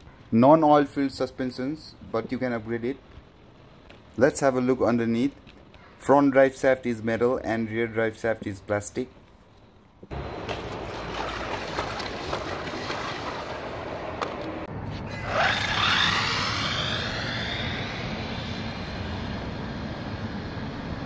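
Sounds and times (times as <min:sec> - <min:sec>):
steady rushing noise: 0:11.8 - 0:21.0
toy car motor whine: 0:15.2 - 0:18.4.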